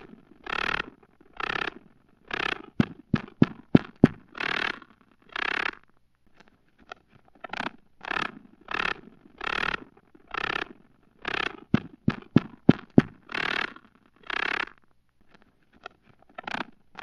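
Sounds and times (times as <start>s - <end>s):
spider raspy scraping bursts: 0.4s - 2.9s, 8.0s - 14.7s
sharp clicks: 0.4s - 5.8s, 6.8s - 17.0s.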